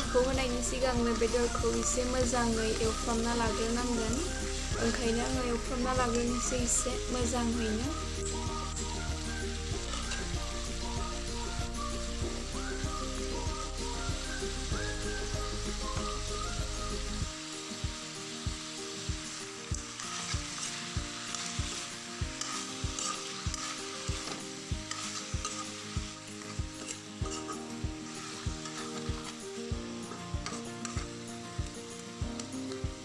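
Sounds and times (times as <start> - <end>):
food sizzling in a wok: 0.0 - 33.0
metal ladle scraping a wok: 20.0 - 29.4, 30.1 - 31.2.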